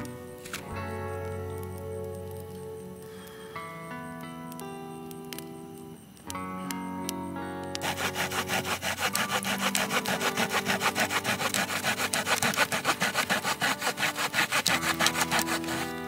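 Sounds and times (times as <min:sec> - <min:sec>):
hand saw cutting wood: 0:07.8 - 0:16.0.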